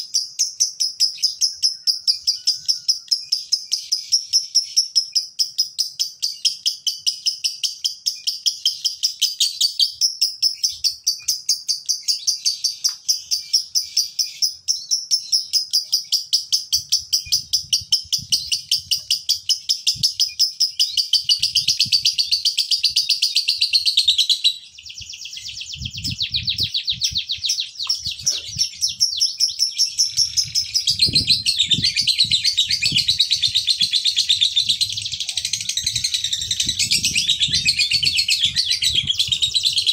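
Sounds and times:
lovebird chattering high chirps: 0:00.0 - 0:39.9.

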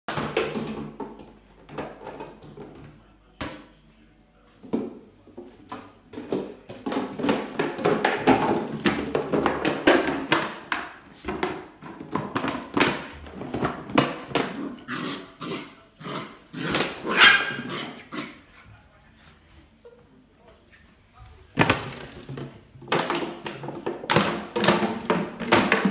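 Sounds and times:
plastic bottle crackling on tile floor: 0:06.1 - 0:14.8, 0:21.4 - 0:25.9.

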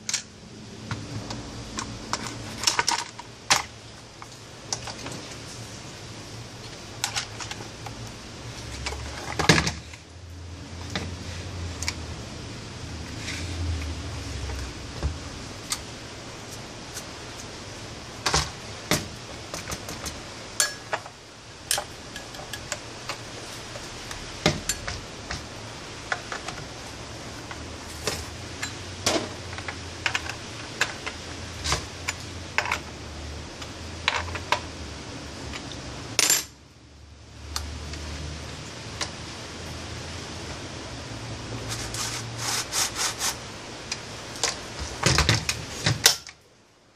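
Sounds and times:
metal scrape: 0:41.6 - 0:43.4.

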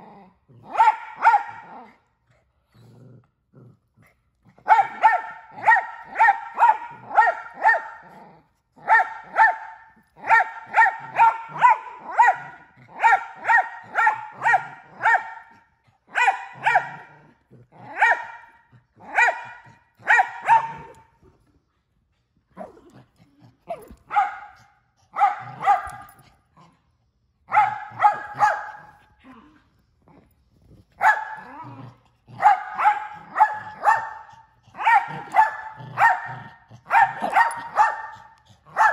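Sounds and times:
dog play-barking: 0:00.6 - 0:02.0, 0:04.5 - 0:21.4, 0:22.5 - 0:26.8, 0:27.5 - 0:29.6, 0:30.8 - 0:38.9.

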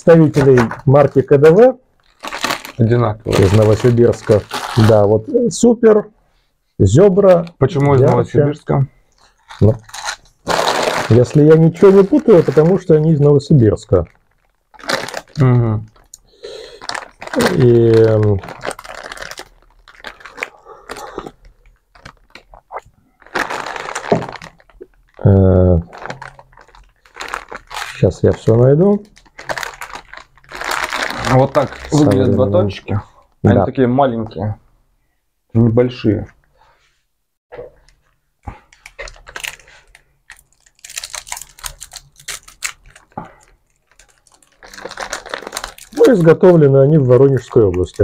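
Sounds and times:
plastic packaging crinkling: 0:00.0 - 0:01.4, 0:02.0 - 0:05.2, 0:09.1 - 0:32.6, 0:37.9 - 0:48.0.

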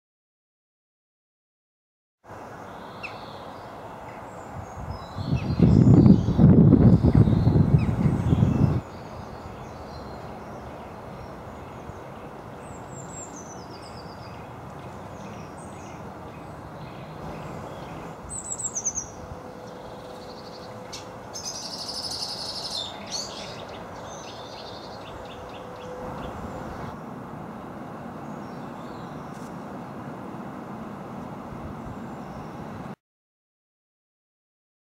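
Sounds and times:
songbirds singing and calling: 0:02.3 - 0:27.0, 0:28.2 - 0:30.1, 0:31.9 - 0:32.8.

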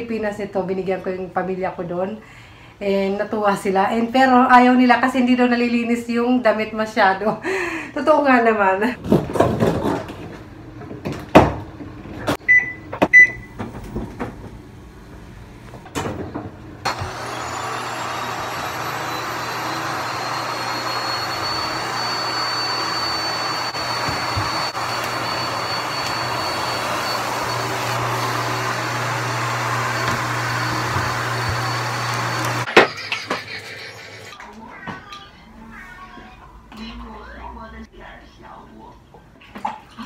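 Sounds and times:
short electronic beeps: 0:12.5 - 0:13.5
vacuum cleaner running with whine: 0:16.8 - 0:32.7.

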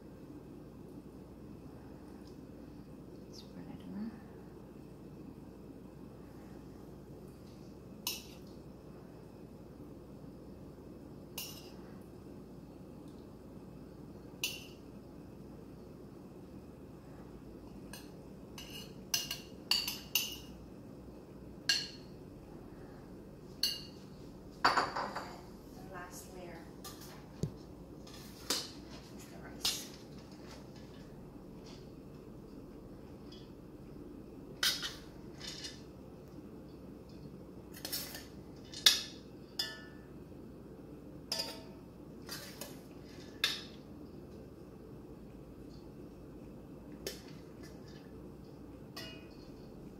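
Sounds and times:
metal spoon clinking on plate: 0:41.3 - 0:41.8, 0:48.9 - 0:49.6.

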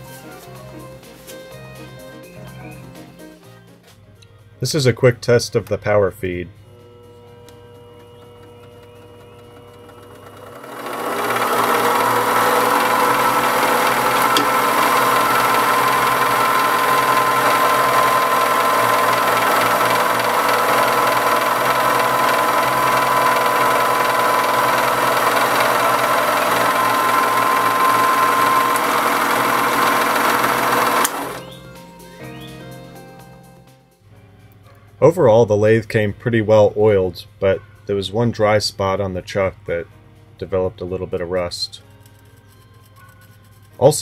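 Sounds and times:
metal lathe motor running: 0:06.6 - 0:31.6.

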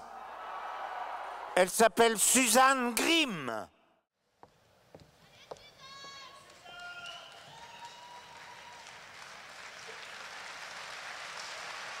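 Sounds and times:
audience applause: 0:06.7 - 0:12.0.

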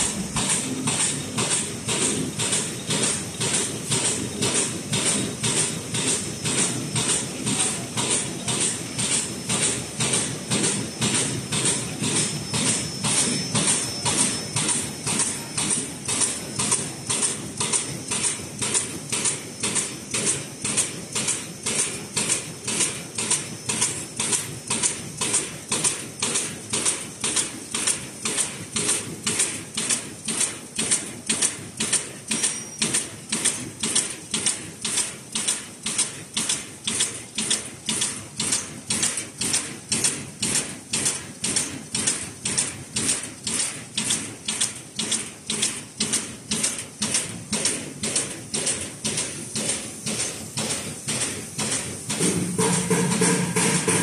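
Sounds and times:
machine hissing clacks: 0:00.0 - 0:54.0.

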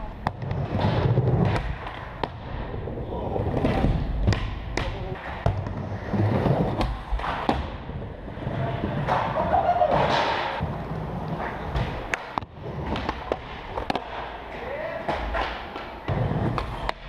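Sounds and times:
skateboard wheels rolling: 0:00.0 - 0:04.4, 0:05.0 - 0:17.0
skateboards clacking and landing: 0:08.4 - 0:17.0.

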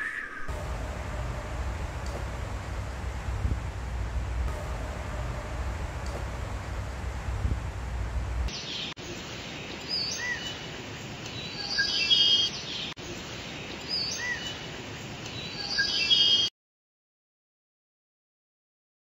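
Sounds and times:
low wind rumble: 0:00.4 - 0:11.2
birds chirping and calling: 0:08.5 - 0:16.5.

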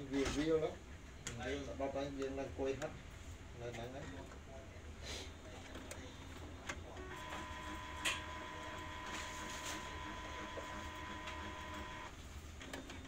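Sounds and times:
printer motor whine: 0:06.7 - 0:13.0.

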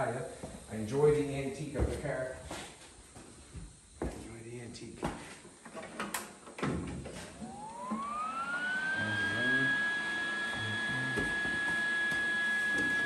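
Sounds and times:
welder high-pitched whine: 0:07.4 - 0:13.0.

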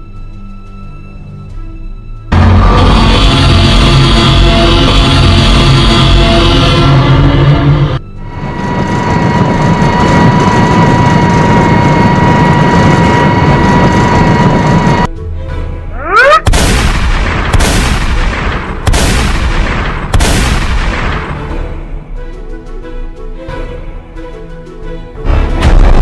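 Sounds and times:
loud rushing noise with high tone: 0:02.3 - 0:15.1
cartoon cannon blasts: 0:16.3 - 0:21.5.

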